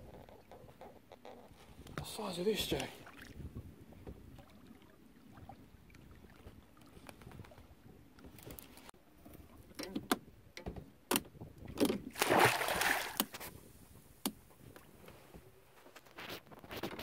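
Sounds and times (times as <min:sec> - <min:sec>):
fish splashing in water: 0:12.1 - 0:13.3.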